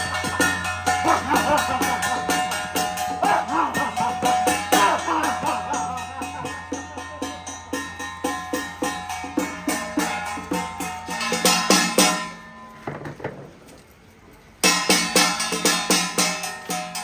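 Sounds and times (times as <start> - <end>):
drums beating fast rhythm: 0.0 - 12.4, 14.6 - 17.0
sustained tones: 0.0 - 12.8.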